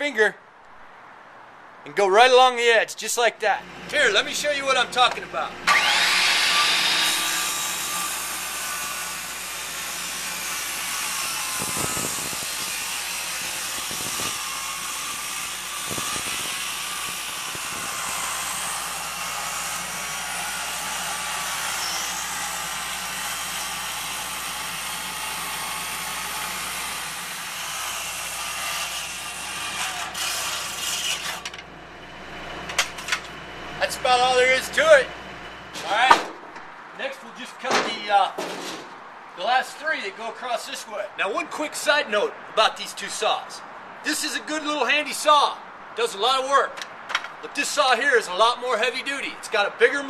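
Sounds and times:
circular saw cutting wood: 0:03.6 - 0:36.3.

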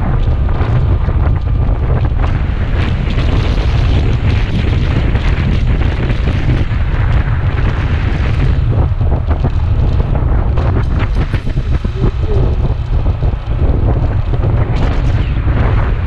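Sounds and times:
motorcycle running noise: 0:00.0 - 0:16.0
wind buffeting microphone: 0:00.0 - 0:16.0.

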